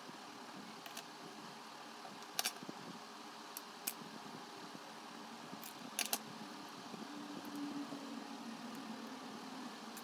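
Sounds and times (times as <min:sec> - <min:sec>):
faint steady hum: 0:00.0 - 0:10.0.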